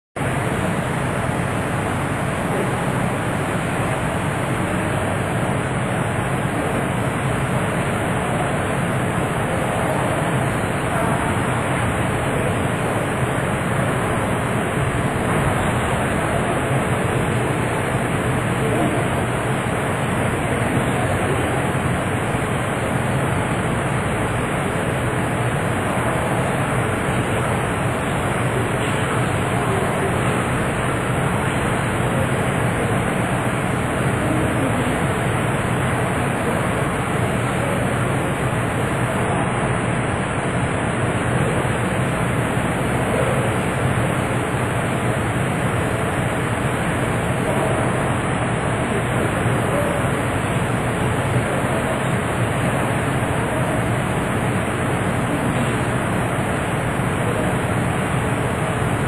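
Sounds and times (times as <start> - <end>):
steady rushing background noise: 0.2 - 59.0.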